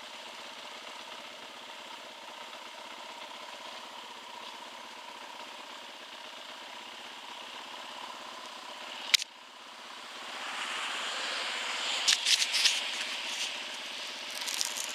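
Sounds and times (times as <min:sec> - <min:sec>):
dirt bike engine idling: 0:00.0 - 0:10.3, 0:11.7 - 0:14.9.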